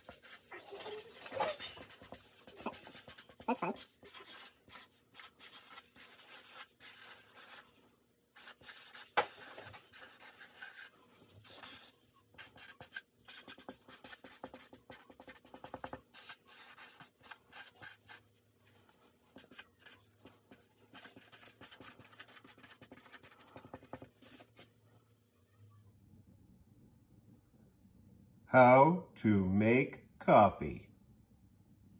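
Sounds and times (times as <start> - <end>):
marker scratching on paper: 0.0 - 7.8, 8.4 - 24.7.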